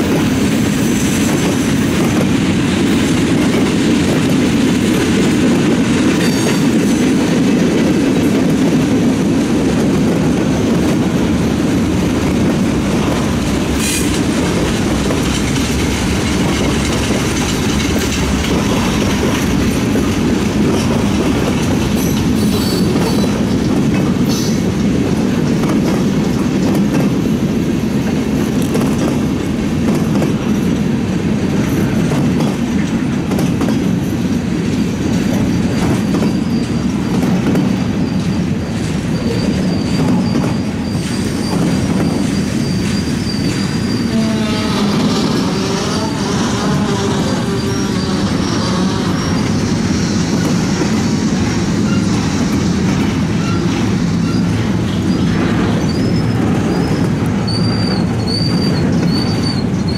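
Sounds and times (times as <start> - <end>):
train wheels rolling on rail: 0.0 - 59.9
freight car clanks and squeaks: 35.8 - 44.1, 53.0 - 59.9.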